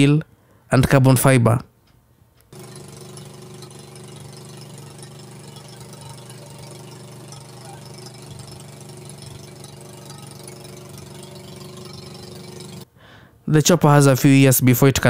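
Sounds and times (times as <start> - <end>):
helicopter engine running: 2.6 - 12.9.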